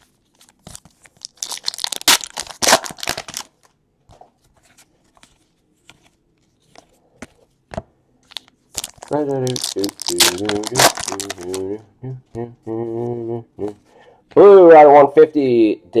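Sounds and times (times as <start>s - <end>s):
foil wrapper crinkling and tearing: 0.4s - 3.6s, 8.3s - 11.7s.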